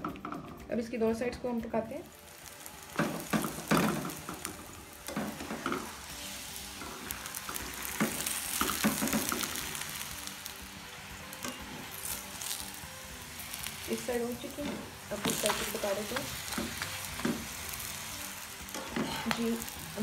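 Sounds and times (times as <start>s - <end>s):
bread sizzling in a pan: 2.0s - 20.0s
steel spatula scraping and tapping: 18.7s - 19.6s.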